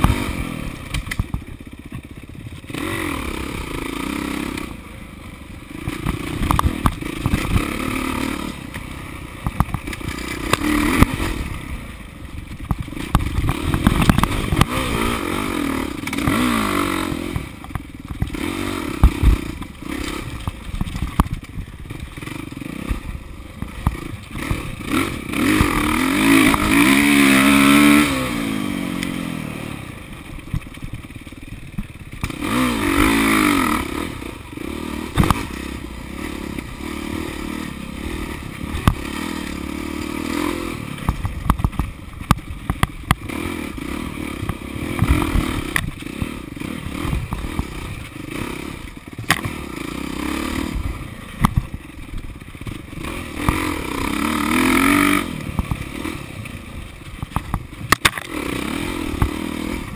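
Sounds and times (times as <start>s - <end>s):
dirt bike engine revving: 0.0s - 59.9s
bike clattering over rough ground: 5.8s - 7.8s, 12.4s - 14.9s.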